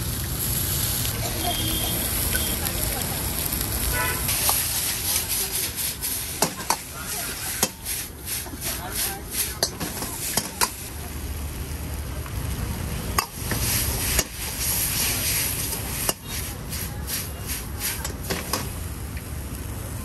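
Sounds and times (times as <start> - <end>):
food sizzling in a wok: 0.0 - 20.0
metal ladle scraping a wok: 4.1 - 10.9, 13.3 - 18.7.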